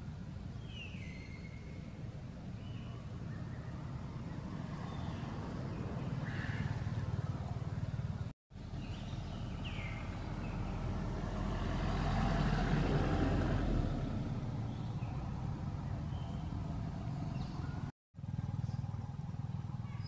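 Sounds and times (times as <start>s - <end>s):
motor traffic rumble: 0.0s - 20.0s
vehicle passing: 3.0s - 18.6s.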